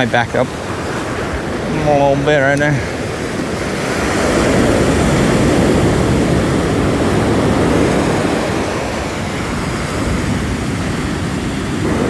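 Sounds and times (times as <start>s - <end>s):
waves breaking on beach: 0.0s - 12.0s.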